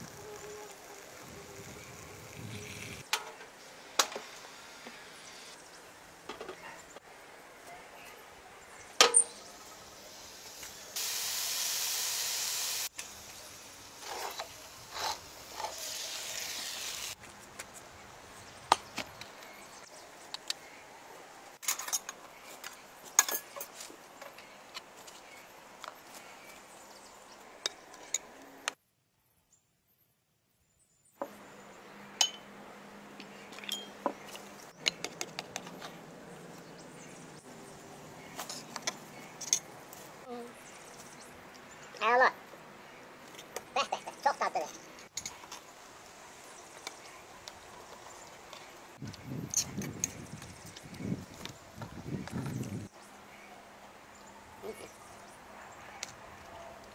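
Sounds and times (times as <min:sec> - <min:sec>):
steady hiss: 0:09.3 - 0:18.3.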